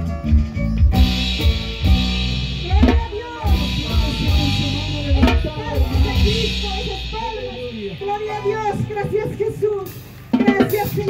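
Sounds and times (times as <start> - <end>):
electric bass: 0.0 - 10.4
drum kit beat: 0.0 - 11.0.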